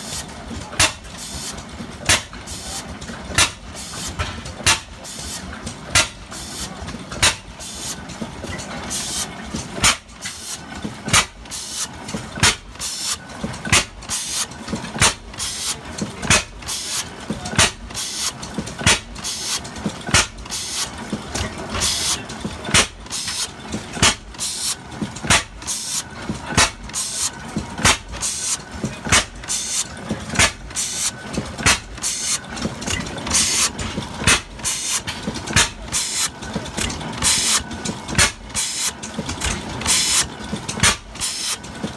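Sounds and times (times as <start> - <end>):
gas engine firing steadily: 0.0 - 41.9.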